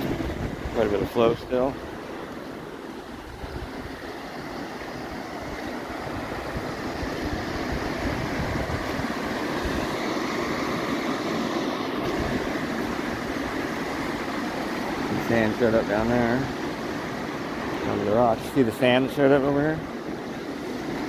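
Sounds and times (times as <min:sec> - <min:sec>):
rushing creek rapids: 0:00.0 - 0:21.0.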